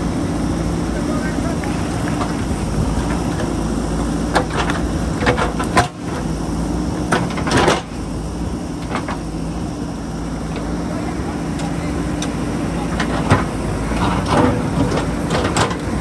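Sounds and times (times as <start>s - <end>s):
diesel engine running: 0.0s - 16.0s
sharp clunks and grinding: 2.0s - 6.3s, 7.0s - 8.0s, 8.8s - 9.3s, 11.6s - 16.0s.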